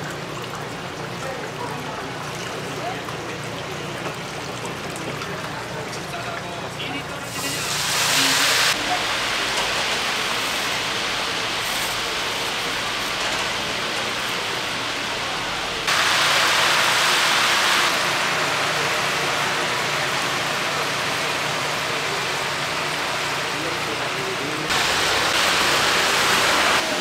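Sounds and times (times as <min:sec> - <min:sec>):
chicken sizzling in hot oil: 0:07.2 - 0:27.0.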